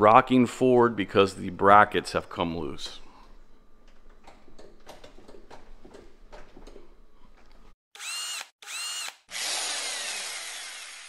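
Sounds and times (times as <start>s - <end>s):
power drill revving: 8.0s - 11.0s.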